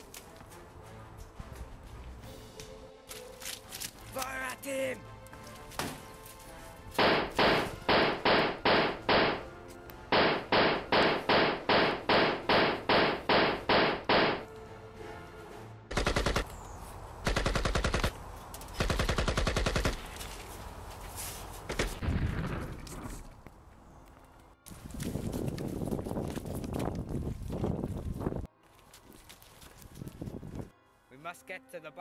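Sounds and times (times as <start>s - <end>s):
single rifle shots: 7.0s - 9.5s, 10.1s - 14.4s
machine-gun bursts: 15.9s - 16.4s, 17.2s - 18.1s, 18.8s - 20.0s.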